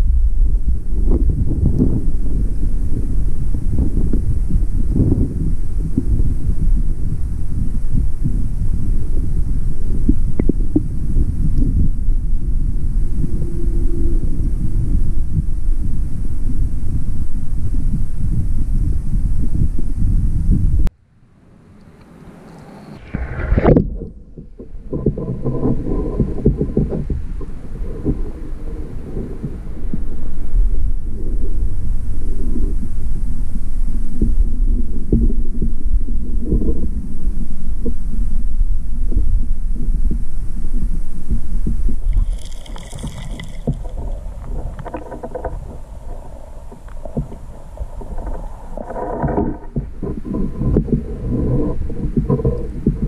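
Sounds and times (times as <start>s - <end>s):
muffled underwater current: 0.0s - 20.9s, 22.4s - 53.0s
clicks and knocks underwater: 9.9s - 11.9s, 23.1s - 30.1s, 40.8s - 53.0s
splash into water: 42.1s - 44.5s.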